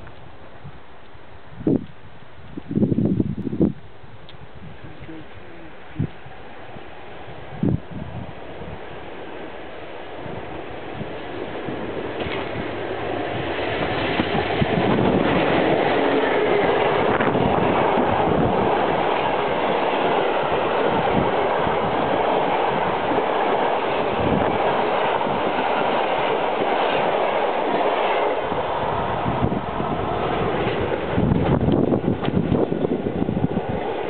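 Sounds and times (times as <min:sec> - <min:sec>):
train wheels rumbling on rails: 0:05.9 - 0:34.0
sharp clicks of train wheels: 0:09.1 - 0:34.0.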